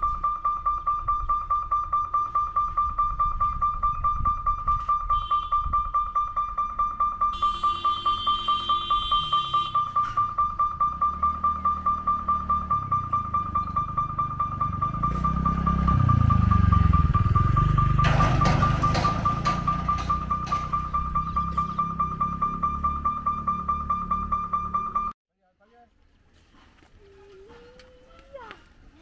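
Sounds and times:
level crossing alarm pulsing: 0:00.0 - 0:25.2
motor vehicle rumbling: 0:00.0 - 0:25.2.

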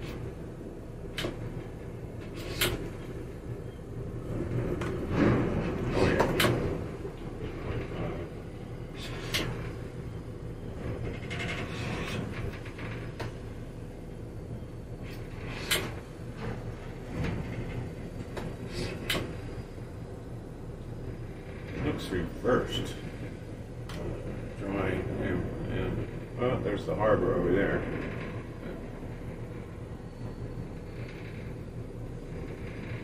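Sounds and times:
boat engines idling: 0:00.0 - 0:33.0
sharp clicks and knocks: 0:01.1 - 0:03.2, 0:04.3 - 0:08.0, 0:09.0 - 0:09.8, 0:10.8 - 0:13.6, 0:15.0 - 0:19.6.

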